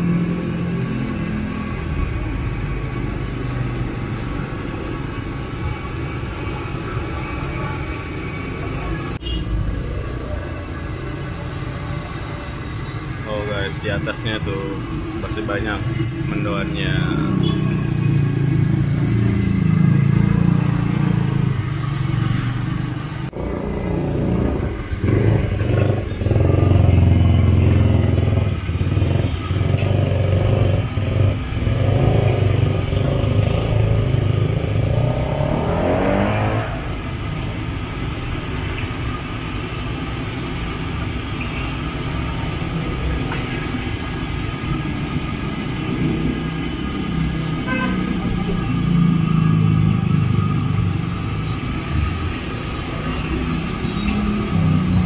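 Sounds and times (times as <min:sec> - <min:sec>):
motorcycle engines running: 0:00.0 - 0:55.0
engine revving up: 0:09.6 - 0:37.6.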